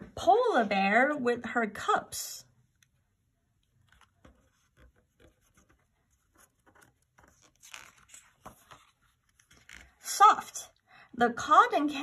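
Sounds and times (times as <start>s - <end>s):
paper page rustling: 3.8s - 10.0s.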